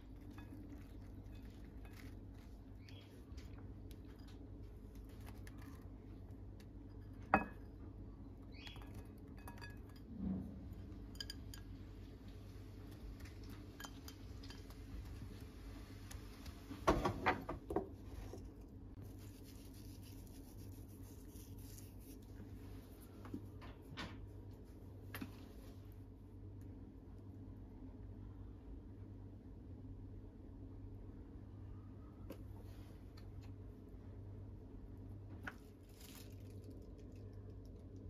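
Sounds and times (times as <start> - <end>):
low steady hum: 0.0 - 38.0
ceramic bowls clinking: 6.9 - 7.8, 8.6 - 10.1, 10.8 - 11.8, 12.9 - 15.2.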